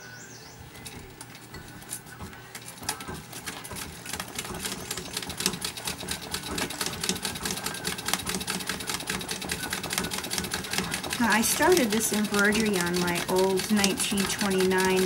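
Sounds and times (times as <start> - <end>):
sewing machine needle clicks: 4.1 - 15.0.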